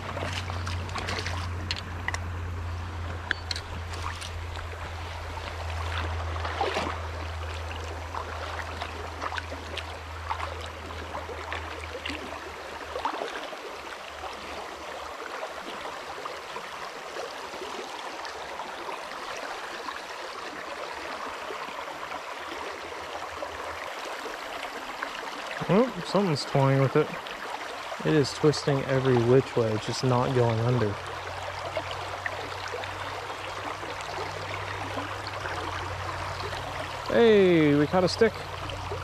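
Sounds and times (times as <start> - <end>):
small splashes: 0.0 - 2.3, 3.1 - 39.0
low steady hum: 0.0 - 15.2.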